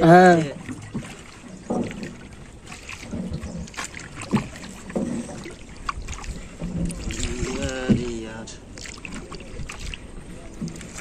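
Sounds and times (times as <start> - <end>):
wind on microphone: 5.2 - 8.4, 9.0 - 11.0.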